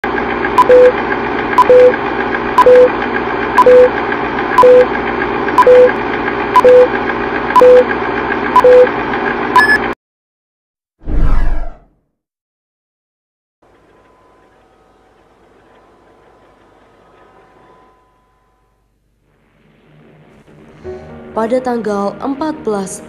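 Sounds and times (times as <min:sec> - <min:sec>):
short beeps with clicks: 0:00.6 - 0:00.9, 0:01.6 - 0:02.0, 0:02.6 - 0:02.9, 0:03.6 - 0:03.9, 0:04.6 - 0:04.9, 0:05.6 - 0:05.9, 0:06.6 - 0:06.9, 0:07.6 - 0:07.9, 0:08.6 - 0:08.9, 0:09.6 - 0:09.9
higher beep: 0:00.6 - 0:01.0, 0:01.6 - 0:01.9, 0:02.6 - 0:02.9, 0:03.6 - 0:03.9, 0:04.6 - 0:04.9, 0:05.6 - 0:05.9, 0:06.6 - 0:06.9, 0:07.6 - 0:07.9, 0:08.6 - 0:08.9, 0:09.6 - 0:09.9.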